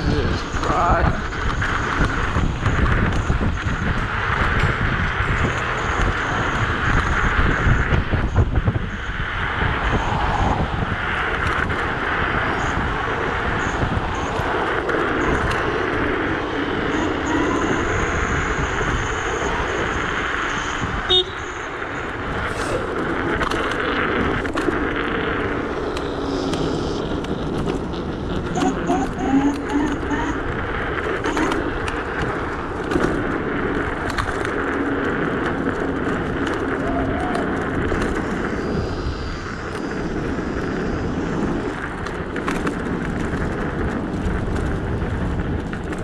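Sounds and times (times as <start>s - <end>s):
tyre-on-road noise: 0.0s - 46.0s
wind buffeting microphone: 0.0s - 46.0s
thin high whine: 12.4s - 31.6s.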